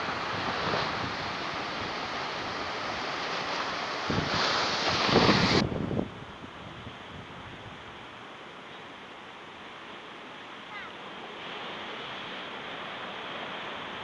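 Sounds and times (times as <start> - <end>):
surf breaking on rocks: 0.0 - 6.0
wind buffeting microphone: 4.0 - 7.8.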